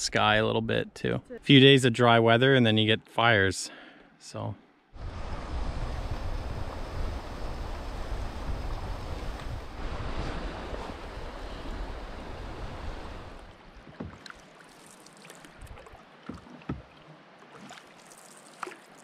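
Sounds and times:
wind buffeting the microphone: 5.0 - 13.5
canoe paddle splashing in water: 8.8 - 19.0.

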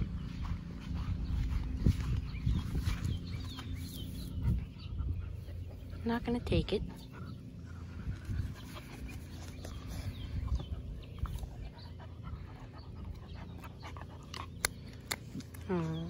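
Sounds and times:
puppy panting: 3.0 - 15.2.

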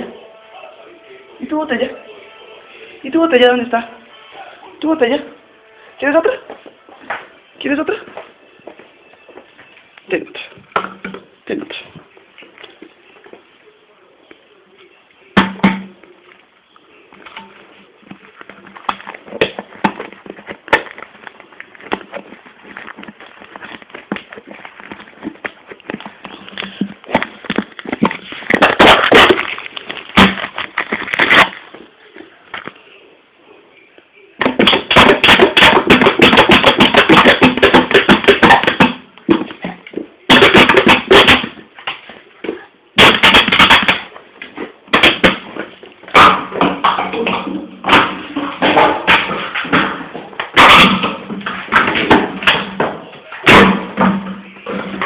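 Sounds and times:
puppy chewing plastic bottle: 15.6 - 32.9.

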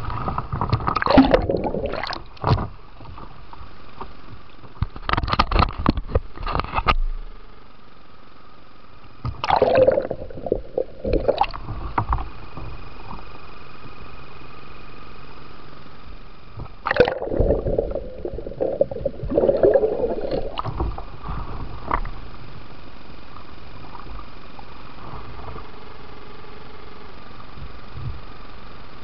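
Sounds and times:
muffled hiss: 0.0 - 29.0
water splashing and gurgling: 0.9 - 2.6, 9.4 - 12.1, 16.8 - 22.1
loud splash: 16.9 - 20.7.

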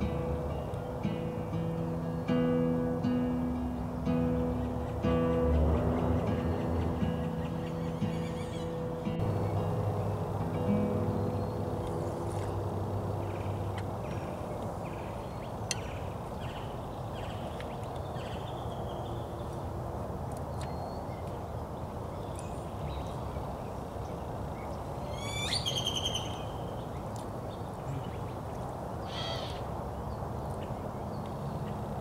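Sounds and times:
low outdoor rumble: 0.0 - 17.4
small birds chirping: 3.6 - 32.0.

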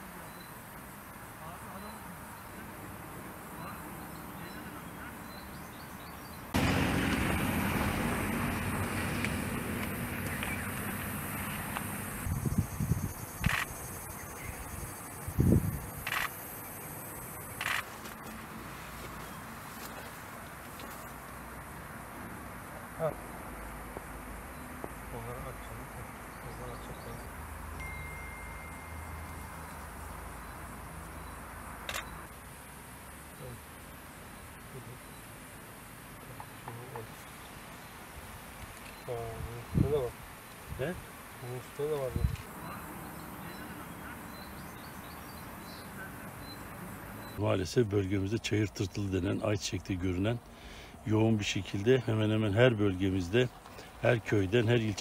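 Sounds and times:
thin high tone: 27.8 - 30.1
bird chirps: 42.2 - 47.4.

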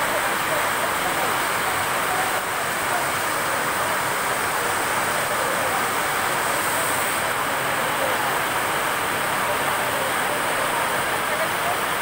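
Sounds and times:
heavy rain on concrete: 0.0 - 12.0.

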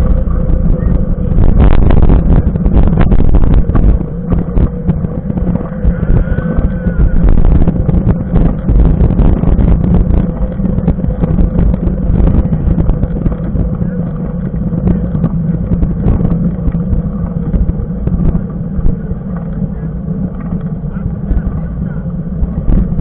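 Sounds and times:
wind buffeting microphone: 0.0 - 23.0
tyres rolling on asphalt: 2.4 - 23.0.

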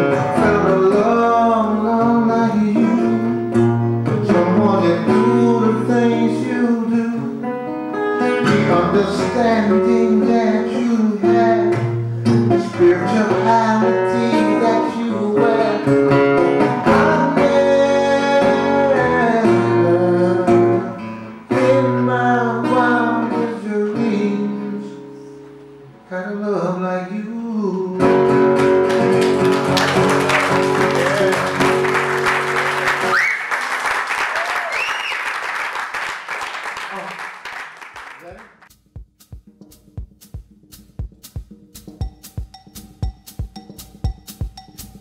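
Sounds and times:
man singing: 0.0 - 7.4, 8.4 - 25.3, 26.1 - 28.4
acoustic guitar strumming: 0.0 - 26.5, 27.6 - 33.4, 38.7 - 45.0
audience applause: 28.8 - 38.7.

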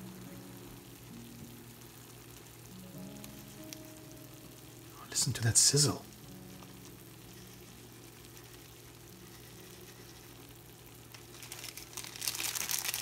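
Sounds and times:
food sizzling in baking dish: 0.0 - 13.0.

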